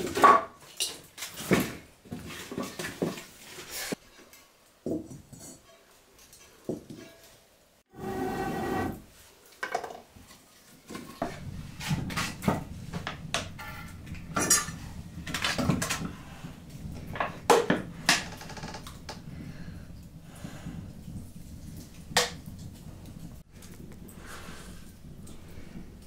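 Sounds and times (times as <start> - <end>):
low steady noise: 10.6 - 26.0
metal pots clinking and knocking: 10.9 - 19.2.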